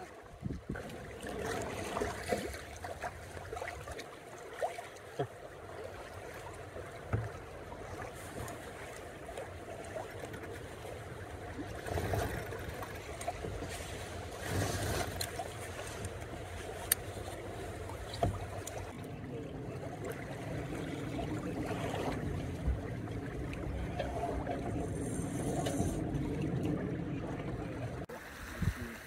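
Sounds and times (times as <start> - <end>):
water lapping against hull: 0.0 - 29.0
wind rumble on microphone: 0.3 - 1.0, 19.3 - 29.0.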